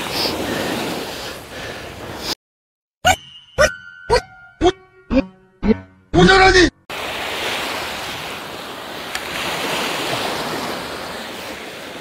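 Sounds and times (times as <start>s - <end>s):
surf washing up beach: 6.9s - 12.0s.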